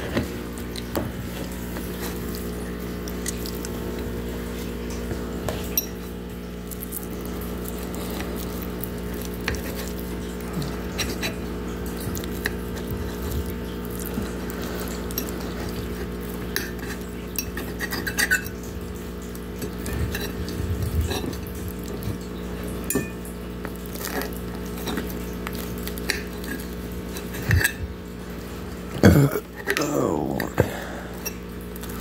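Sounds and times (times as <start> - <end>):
steady low hum: 0.0 - 32.0
fork scraping ceramic plate: 9.4 - 11.5, 12.2 - 18.6, 19.6 - 22.2, 25.9 - 27.9.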